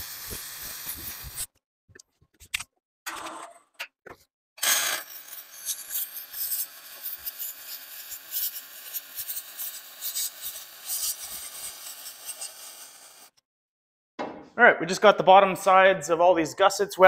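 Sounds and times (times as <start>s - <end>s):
arc welding hiss and crackle: 0.0s - 1.5s, 4.9s - 13.4s.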